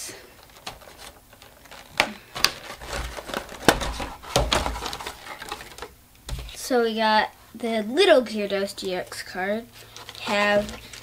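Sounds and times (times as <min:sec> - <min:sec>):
cardboard and plastic crinkling: 0:00.3 - 0:06.8, 0:08.6 - 0:11.0
dull thumps: 0:01.9 - 0:06.6.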